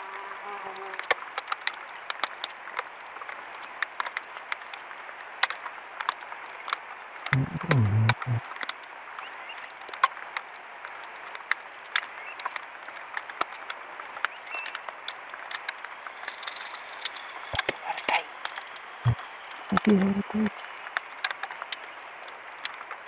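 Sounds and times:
rain falling on water: 0.0s - 23.0s
raindrop ticks: 1.0s - 23.0s.

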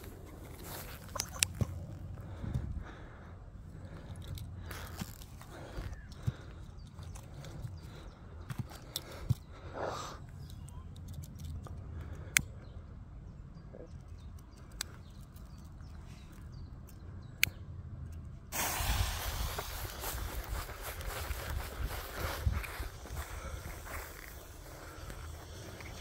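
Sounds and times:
fuse fizzing: 18.5s - 21.8s
steady rustling noise: 18.5s - 26.0s.

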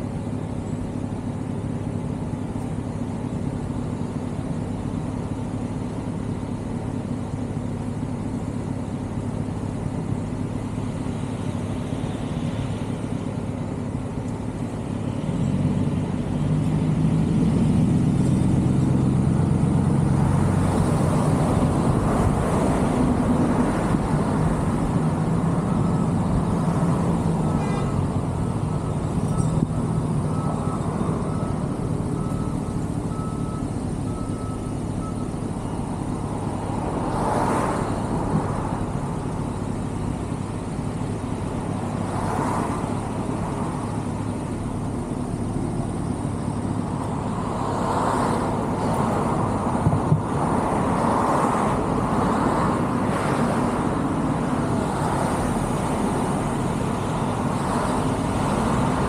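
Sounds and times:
traffic rumble: 0.0s - 59.0s.

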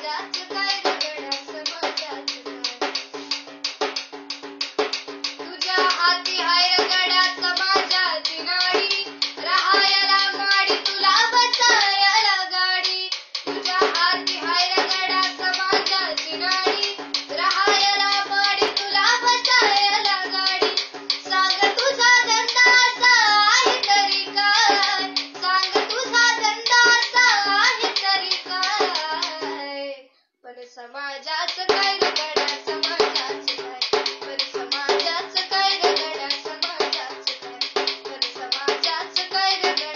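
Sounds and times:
girl singing: 0.0s - 3.7s, 5.2s - 39.9s
hand drum strokes: 0.0s - 29.7s, 31.5s - 39.9s.

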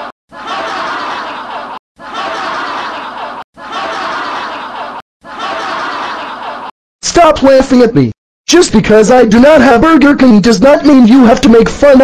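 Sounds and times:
group laughing mockingly: 0.0s - 6.7s.

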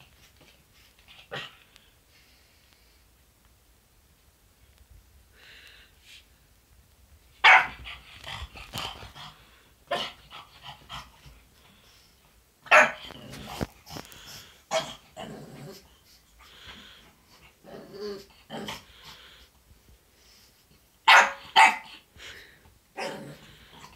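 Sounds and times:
dog barking: 7.4s - 7.8s, 12.7s - 13.0s, 21.1s - 21.9s.

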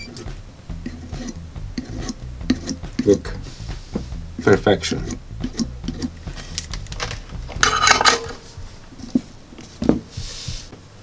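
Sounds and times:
ringing metal rattle: 7.6s - 8.6s.

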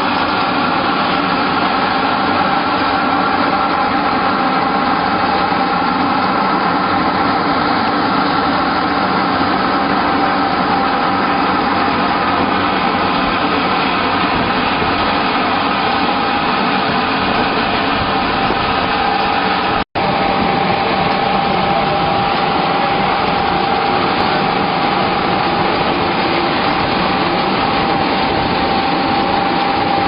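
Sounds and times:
machinery din with constant tones: 0.0s - 30.0s.

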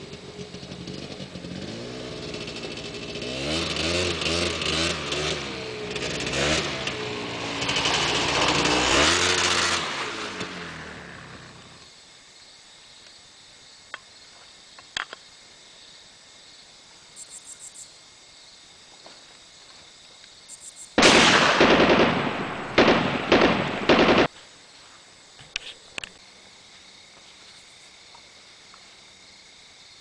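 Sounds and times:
gunfire bursts: 21.0s - 24.3s.

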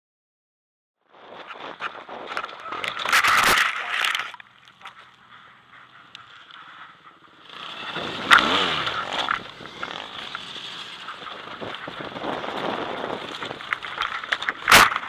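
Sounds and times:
motorcycle engine revving: 4.7s - 15.0s.

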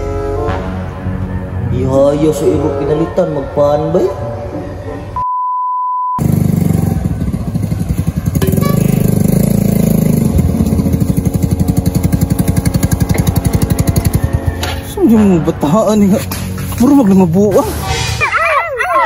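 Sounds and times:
electronic beep tone: 5.2s - 6.2s
scooter engine running: 6.2s - 15.0s.

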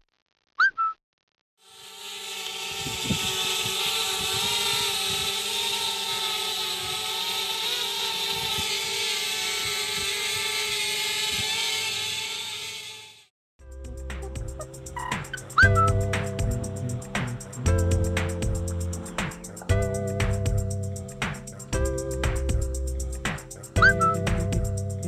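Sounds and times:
whistling chirp: 0.6s - 1.0s, 23.8s - 24.3s
drone propellers whining: 1.7s - 13.3s, 14.2s - 25.0s.

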